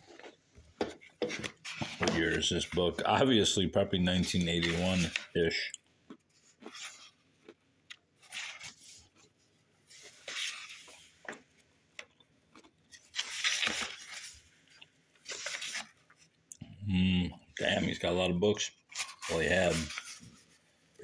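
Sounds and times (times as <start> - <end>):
book pages turning: 0.0 - 3.5, 4.1 - 5.5, 6.2 - 7.2, 8.2 - 9.3, 9.9 - 11.5, 12.6 - 14.6, 15.2 - 16.3, 18.9 - 20.6.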